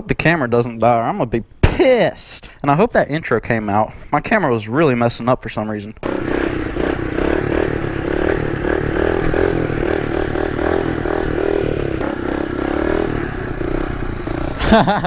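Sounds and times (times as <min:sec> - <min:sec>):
motorbike engine running: 0:06.0 - 0:15.0.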